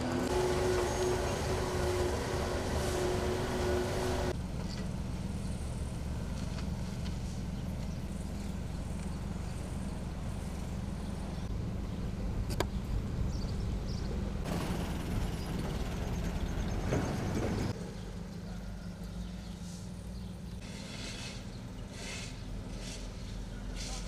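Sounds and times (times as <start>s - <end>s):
passing vehicle noise: 0.0s - 4.4s
low engine rumble: 0.0s - 20.8s.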